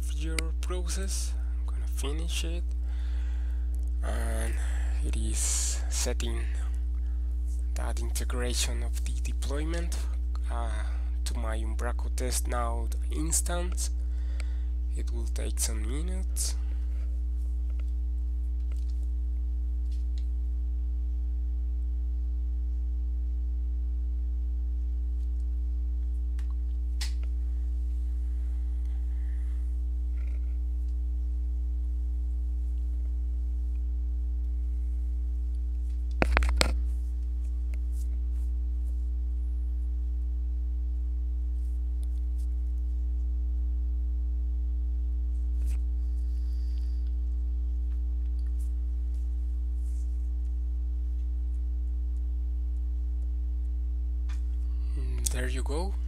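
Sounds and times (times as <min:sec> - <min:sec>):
low electrical hum: 0:00.0 - 0:56.0.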